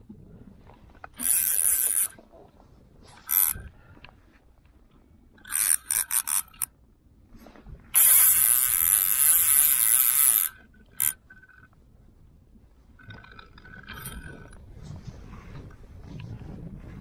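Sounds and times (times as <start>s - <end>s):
fly reel drag ratcheting: 1.0s - 2.2s, 3.1s - 3.8s, 5.4s - 6.7s, 7.9s - 11.8s, 13.0s - 14.6s.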